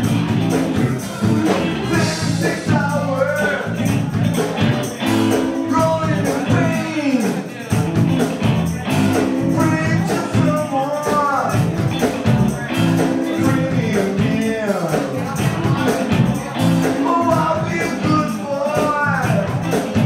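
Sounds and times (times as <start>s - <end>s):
electric guitar: 0.0s - 20.0s
steady percussion: 0.0s - 20.0s
tambourine jingles: 0.0s - 20.0s
man singing into a microphone: 1.8s - 4.5s, 5.3s - 7.8s, 9.3s - 11.8s, 12.6s - 20.0s.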